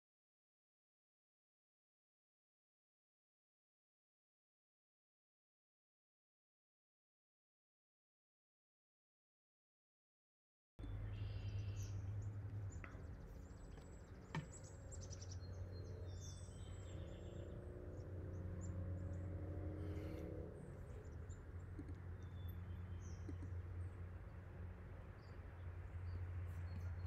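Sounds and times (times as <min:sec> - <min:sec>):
small birds chirping: 0:10.8 - 0:27.0
steady low hum: 0:10.8 - 0:27.0.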